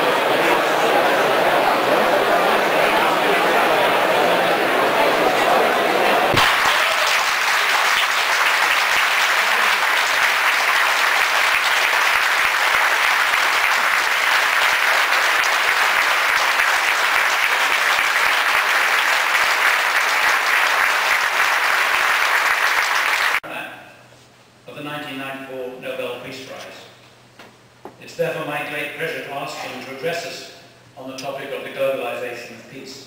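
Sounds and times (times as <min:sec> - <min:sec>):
large audience applauding: 0:00.0 - 0:23.4.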